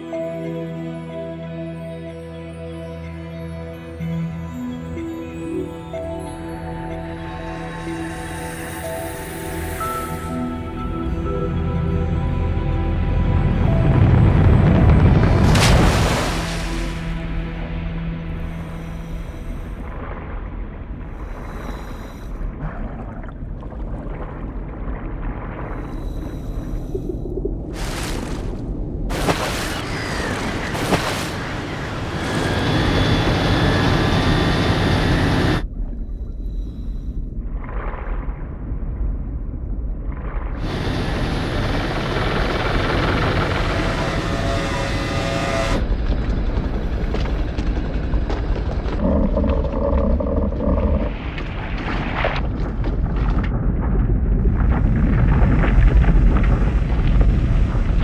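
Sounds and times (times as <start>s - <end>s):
dense rumbling noise: 13.0s - 29.2s, 29.8s - 58.0s.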